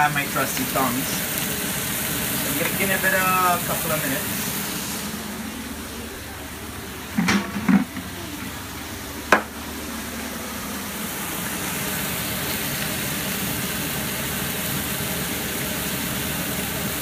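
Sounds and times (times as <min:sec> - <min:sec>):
chicken sizzling in a frying pan: 0:00.0 - 0:05.3, 0:10.8 - 0:17.0
kitchen fan humming: 0:00.0 - 0:17.0.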